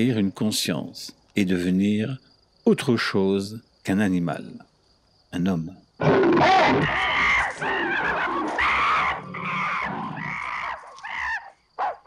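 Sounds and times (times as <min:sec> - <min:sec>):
ape screaming: 0:06.0 - 0:11.6.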